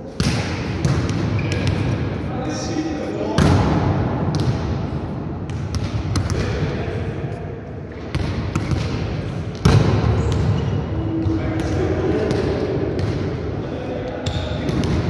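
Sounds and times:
volleyballs hit and bouncing: 0:00.0 - 0:02.3, 0:03.2 - 0:06.8, 0:07.8 - 0:15.0.

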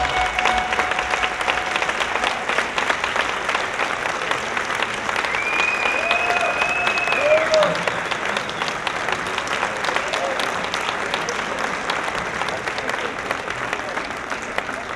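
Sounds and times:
high steady whistle: 0:00.0 - 0:02.6, 0:05.3 - 0:07.4
performance music: 0:00.0 - 0:04.6
audience applauding and cheering: 0:00.0 - 0:14.9.

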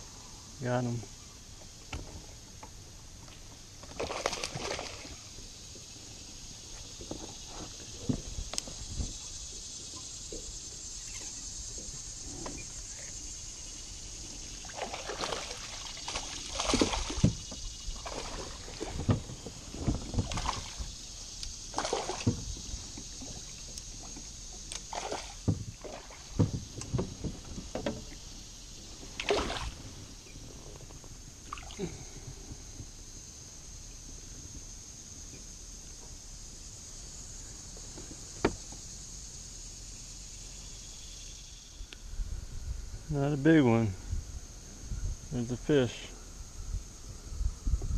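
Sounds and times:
steady high hiss: 0:00.0 - 0:47.9
fish splashing and thrashing in water: 0:03.9 - 0:05.4, 0:14.5 - 0:21.0, 0:21.6 - 0:23.5, 0:24.7 - 0:27.2, 0:29.0 - 0:29.8.

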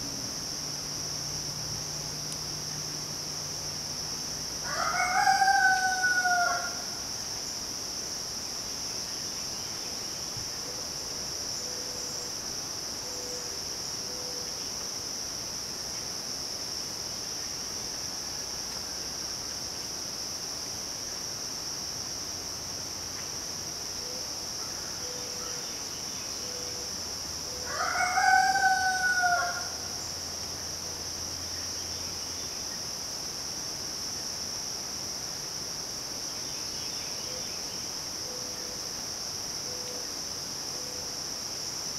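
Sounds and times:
insects droning: 0:00.0 - 0:41.9
rooster crowing: 0:04.6 - 0:06.9, 0:27.6 - 0:30.0.

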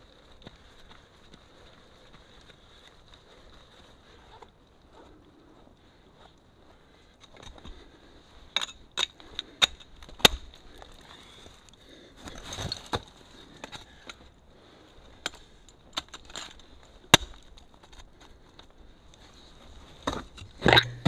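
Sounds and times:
ice crunching and scraping: 0:12.2 - 0:13.8.

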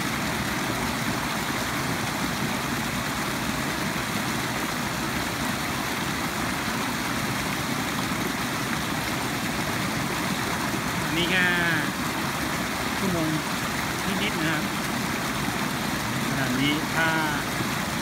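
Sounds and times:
water rushing over a weir: 0:00.0 - 0:18.0.

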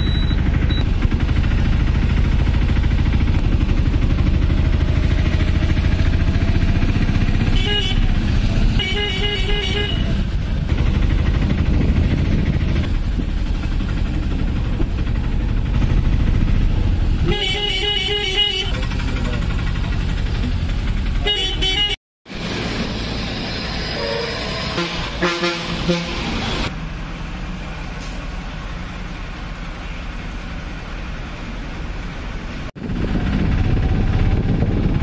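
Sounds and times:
vehicle engine and road rumble: 0:00.0 - 0:35.0
vehicle horn toots: 0:07.5 - 0:08.1, 0:08.8 - 0:10.2, 0:17.2 - 0:18.9, 0:21.2 - 0:22.0, 0:23.9 - 0:26.3.

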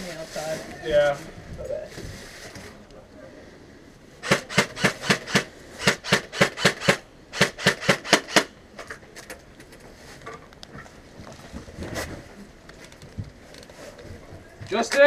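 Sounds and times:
airsoft gun firing: 0:04.2 - 0:08.6.

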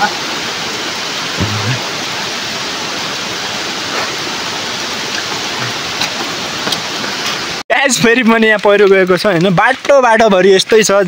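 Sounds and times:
heavy rain falling: 0:00.0 - 0:07.6.

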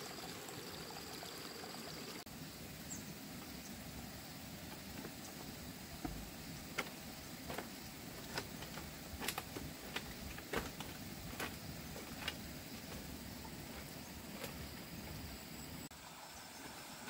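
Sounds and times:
footsteps on bamboo: 0:04.6 - 0:15.4.

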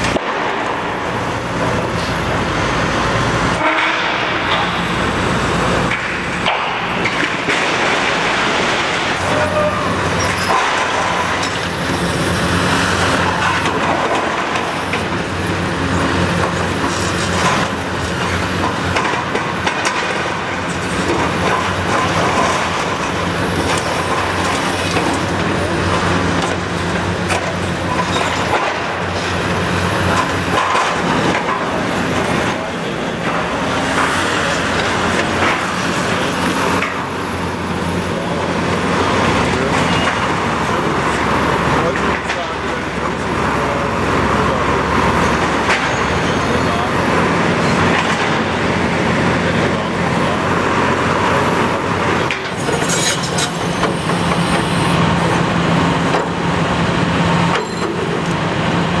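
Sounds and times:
excavator diesel engine under load: 0:00.0 - 0:59.0
metal creaking and crunching: 0:52.5 - 0:53.9.

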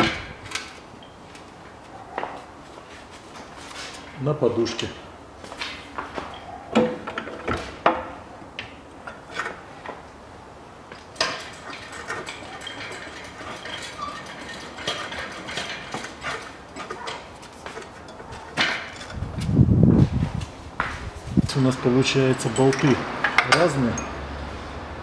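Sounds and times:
handling noise: 0:10.9 - 0:21.6
metal tools clinking on steel: 0:11.2 - 0:19.2, 0:21.5 - 0:24.3.

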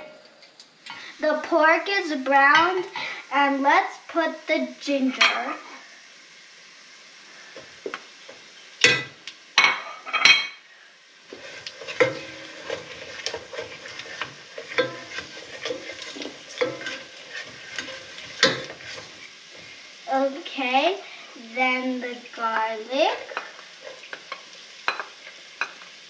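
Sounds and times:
meat sizzling in hot oil: 0:00.8 - 0:26.0
spatula stirring and scraping: 0:11.3 - 0:19.9, 0:22.5 - 0:25.8
spatula clinking against dishes: 0:11.9 - 0:19.1.

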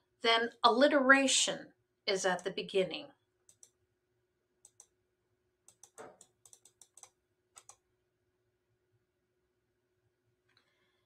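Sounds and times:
computer mouse clicks: 0:03.4 - 0:03.8, 0:04.6 - 0:05.0, 0:05.7 - 0:07.8.

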